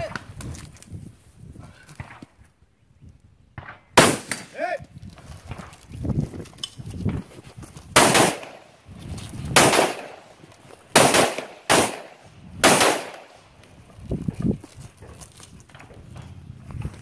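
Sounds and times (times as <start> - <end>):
rifle shots: 3.6 - 4.7, 7.9 - 8.8, 9.5 - 13.5.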